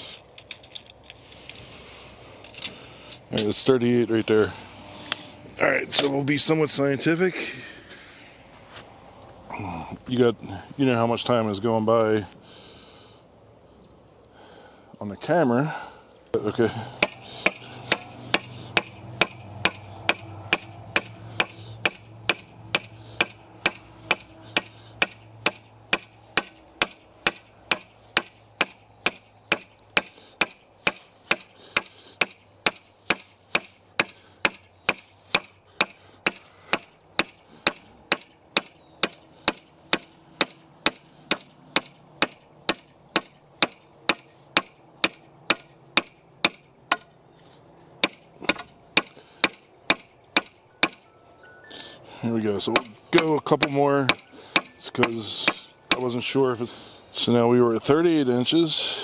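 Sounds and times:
hammer striking steel pin: 17.0s - 47.1s, 48.0s - 51.1s, 52.7s - 56.2s.

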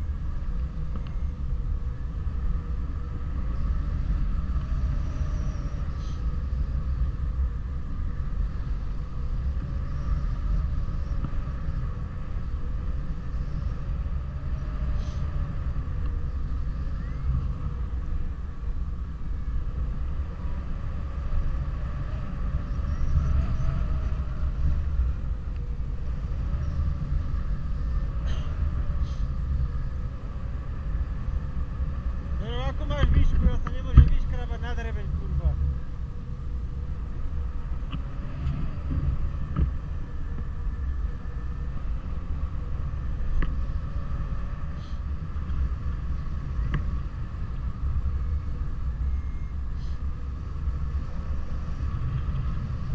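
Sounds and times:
faint wavering hum: 0.0s - 52.9s
wind buffeting microphone: 0.0s - 52.9s.

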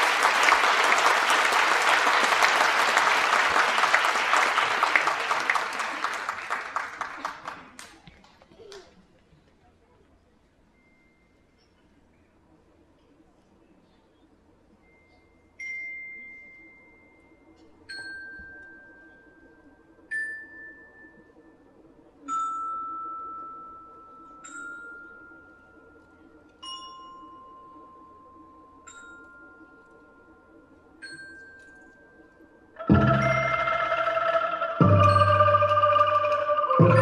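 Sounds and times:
mallet percussion notes ringing: 32.8s - 37.0s.

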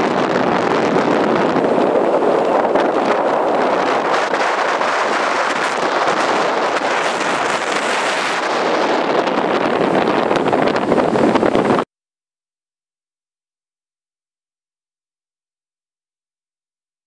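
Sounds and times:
strong wind buffeting microphone: 0.0s - 11.9s.

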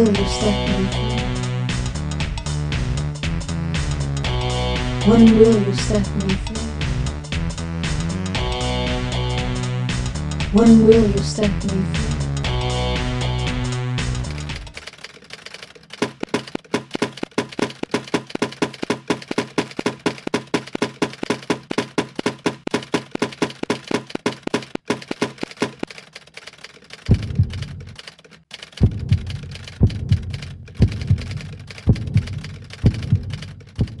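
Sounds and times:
fast ticking pulses: 0.0s - 34.0s
deep heavy thumps: 27.1s - 27.9s, 28.8s - 34.0s.

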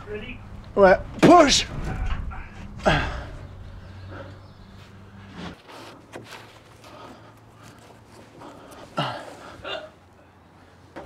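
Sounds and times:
person grunting: 2.3s - 3.5s.

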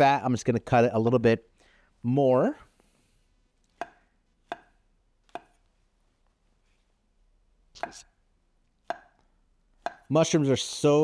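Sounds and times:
knife cutting on wooden board: 7.8s - 8.1s.

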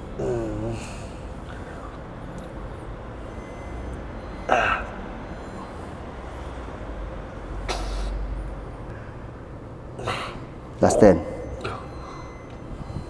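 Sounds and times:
breathy sound: 10.0s - 13.0s.

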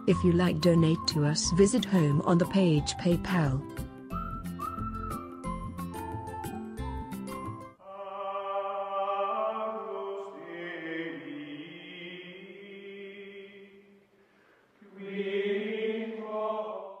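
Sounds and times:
choral voices holding long notes: 7.8s - 14.0s, 14.8s - 17.0s.

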